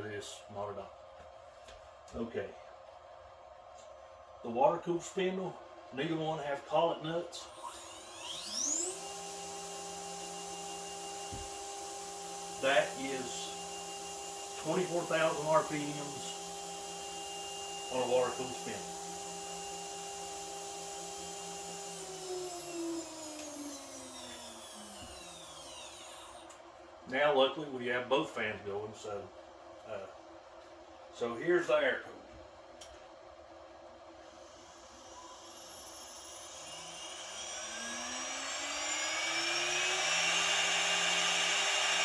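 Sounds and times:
cooling fan running: 0.0s - 42.0s
router spindle whining: 7.4s - 26.6s, 34.2s - 42.0s.

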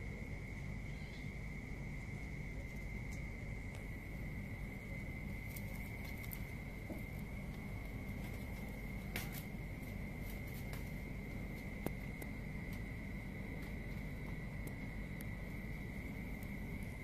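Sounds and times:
high-pitched insect trill: 0.0s - 17.0s
low background rumble: 0.0s - 17.0s
faint clicks and taps: 5.5s - 12.9s.

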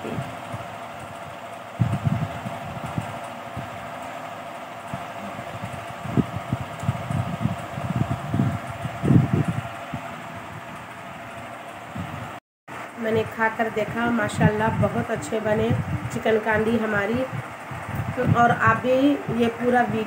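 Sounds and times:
low rumbles: 0.0s - 20.0s
mechanical hum: 0.0s - 20.0s.

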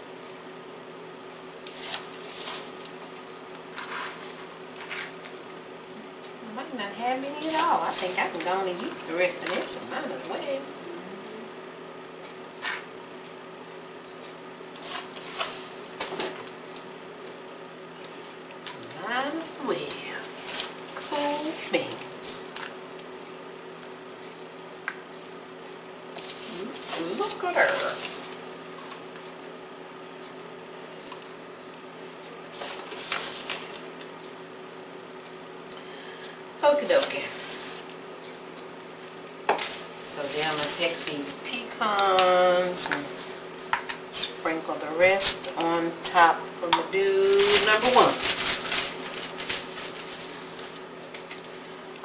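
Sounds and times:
faint steady hum: 0.0s - 52.0s
crumbs rustling in foil pans: 1.7s - 5.5s, 7.2s - 9.9s, 14.2s - 16.6s, 19.2s - 22.9s, 26.1s - 29.4s, 32.4s - 34.2s, 39.6s - 43.3s, 46.8s - 51.7s.

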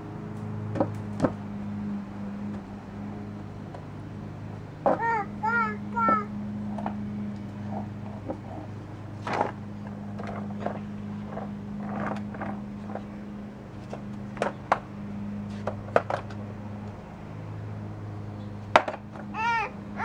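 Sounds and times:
steady low hum: 0.0s - 20.0s
skateboard clattering on paving: 15.6s - 16.4s, 18.7s - 19.3s.

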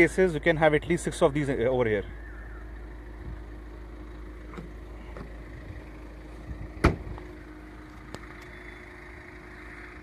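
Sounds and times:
car tailgate thumping shut: 6.8s - 7.2s.

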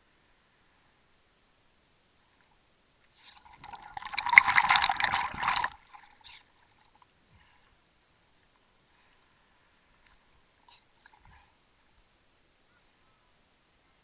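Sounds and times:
water sloshing and gurgling: 3.2s - 7.0s.

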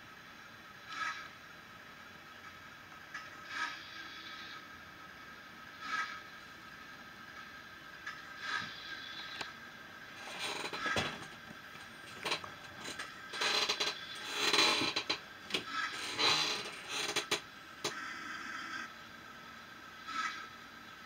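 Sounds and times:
model train steam chuff and hiss: 0.7s - 1.2s, 3.4s - 4.7s, 5.7s - 6.3s, 8.3s - 9.4s.

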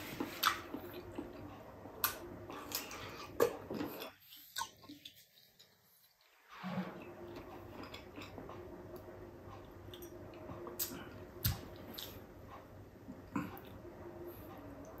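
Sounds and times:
person chewing food: 0.0s - 6.4s, 7.3s - 9.1s, 9.9s - 12.3s
faint steady hum: 0.0s - 15.0s.

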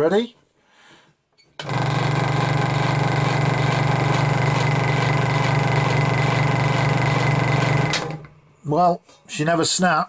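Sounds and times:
scroll saw running: 1.6s - 8.3s.

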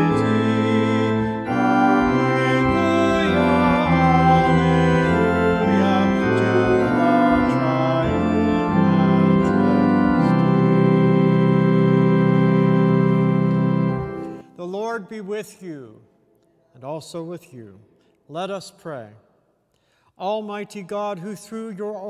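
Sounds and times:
church organ chords: 0.0s - 15.8s.

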